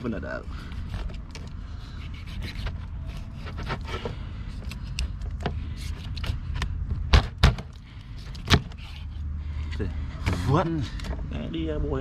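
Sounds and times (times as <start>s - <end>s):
knife scraping through fish: 1.8s - 4.9s.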